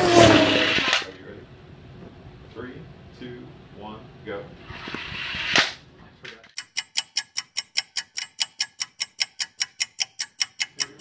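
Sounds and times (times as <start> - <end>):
rapid mechanical ticking: 6.5 - 11.0.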